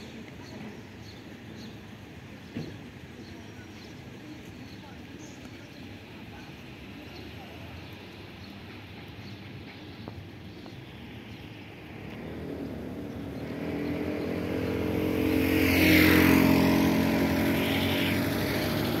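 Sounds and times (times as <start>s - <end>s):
vehicle engine passing by: 11.9s - 19.0s.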